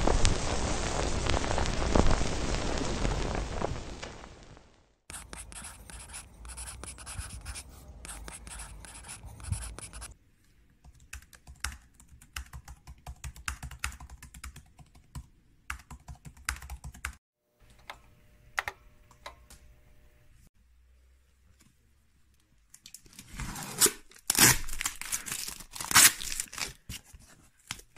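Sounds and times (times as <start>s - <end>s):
pencil scratching on paper: 5.1s - 10.2s.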